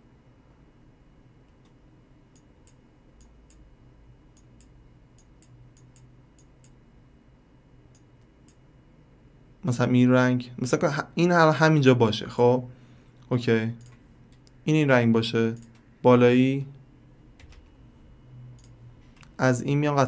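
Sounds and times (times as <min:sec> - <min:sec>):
low steady hum: 0:00.0 - 0:20.0
computer mouse clicks: 0:01.5 - 0:03.6, 0:04.3 - 0:06.8, 0:13.8 - 0:14.6, 0:15.5 - 0:15.9, 0:18.5 - 0:19.4.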